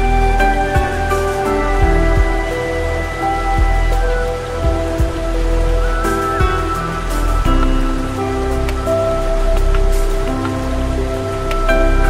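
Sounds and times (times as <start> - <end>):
deep bass: 0.0 - 12.0
rain-like hiss: 0.0 - 12.0
synth chords: 0.0 - 12.0.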